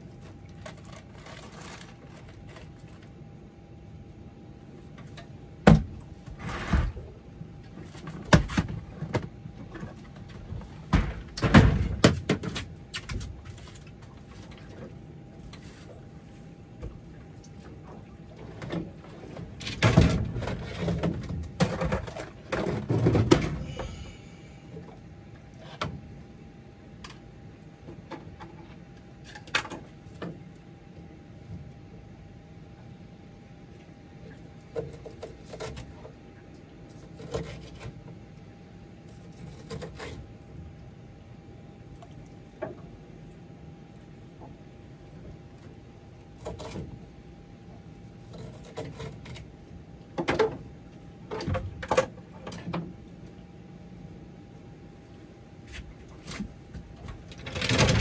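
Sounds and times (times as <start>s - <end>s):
fishing gear clattering on a boat: 7.7s - 14.9s, 18.4s - 24.2s, 55.7s - 58.0s.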